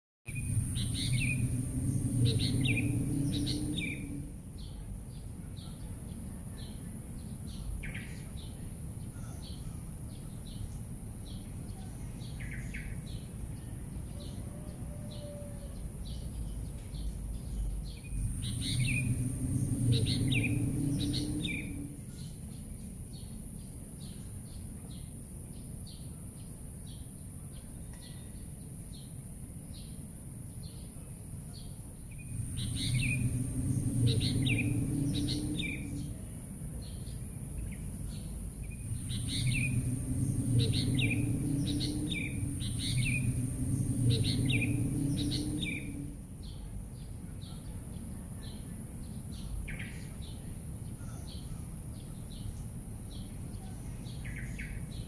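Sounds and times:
low rumble: 0.3 - 8.9, 15.8 - 23.4, 32.0 - 47.3
small birds chirping: 0.3 - 14.4, 15.1 - 55.0.

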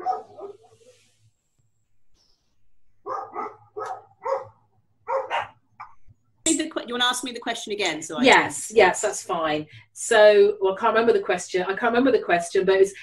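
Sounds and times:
dog barking: 0.0 - 0.8, 3.1 - 5.6.

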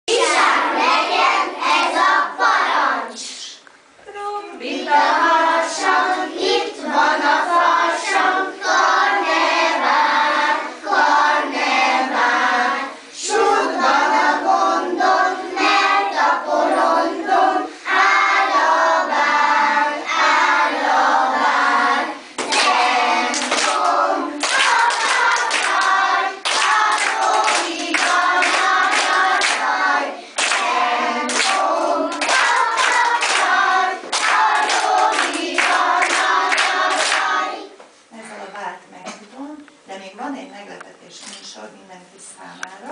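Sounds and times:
children singing together: 0.1 - 3.1, 4.6 - 37.8
children clapping: 22.4 - 37.6.

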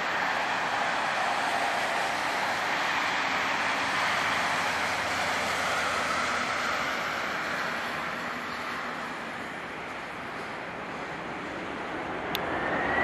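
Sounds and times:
jet engines rushing: 0.0 - 13.0.

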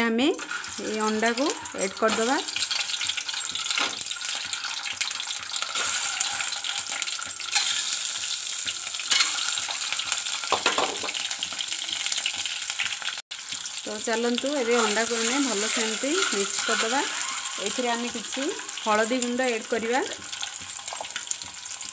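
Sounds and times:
eggs sizzling in hot oil: 0.3 - 21.9
sharp oil crackles: 0.4 - 10.6.

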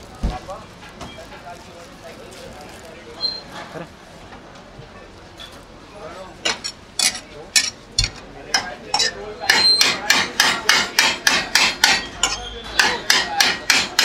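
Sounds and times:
rhythmic sharp knocks: 9.5 - 14.0.

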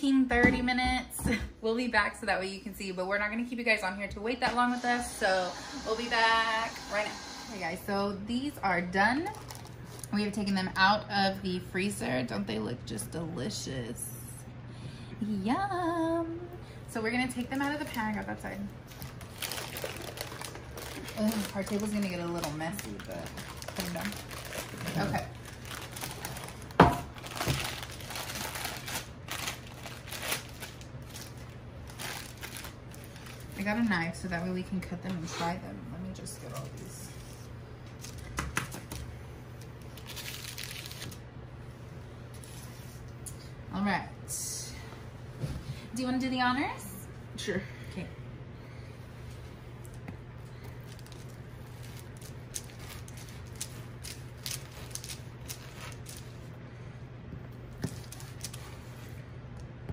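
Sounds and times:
steady low hum: 0.0 - 59.9
baking paper crinkling: 9.1 - 10.5, 17.2 - 34.4, 36.2 - 41.3, 49.7 - 56.6, 57.7 - 59.2.

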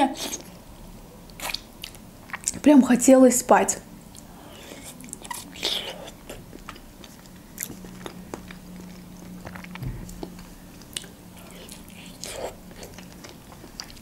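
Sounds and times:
faint low hum: 0.0 - 14.0
wet chewing and biting: 4.1 - 14.0.

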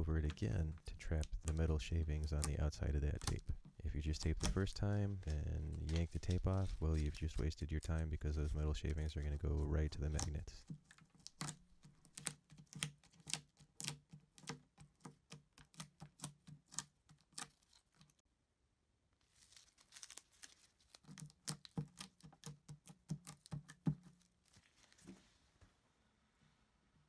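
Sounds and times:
sticky tape clicks: 1.1 - 6.4
soft rustle: 4.8 - 9.6, 19.2 - 21.3, 24.1 - 26.9.

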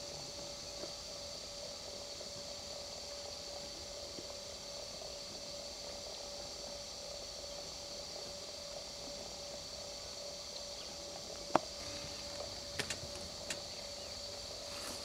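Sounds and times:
faint hiss: 0.0 - 15.0
thin steady hum: 0.0 - 15.0
sharp click: 12.7 - 13.6.

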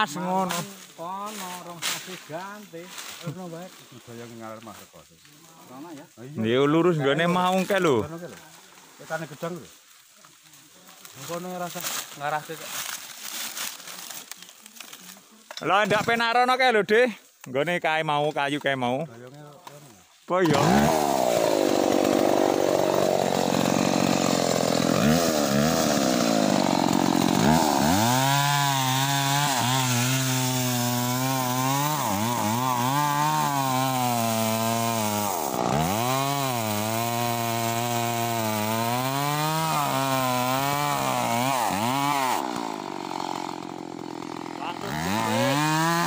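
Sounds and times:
chainsaw cutting wood: 20.4 - 46.0.

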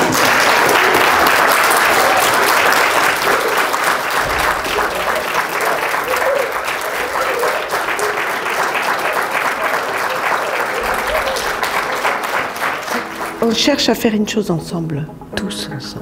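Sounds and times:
audience applauding: 0.0 - 14.0.

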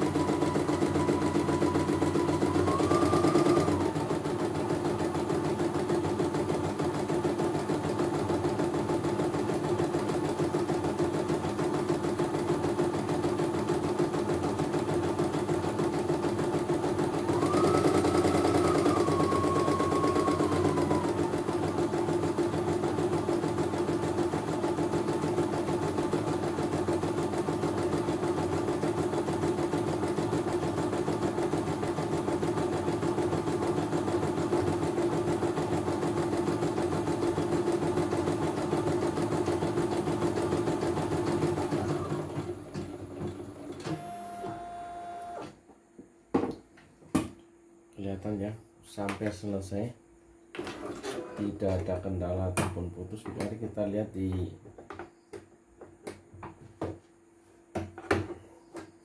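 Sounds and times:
high machine whine: 17.4 - 21.7.

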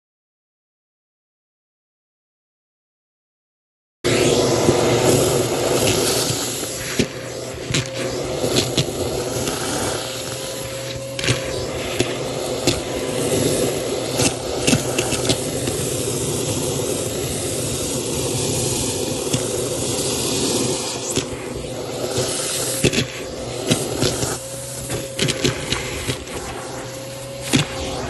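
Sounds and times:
vacuum cleaner running: 4.1 - 28.0
lentils rattling up vacuum wand: 4.4 - 28.0.

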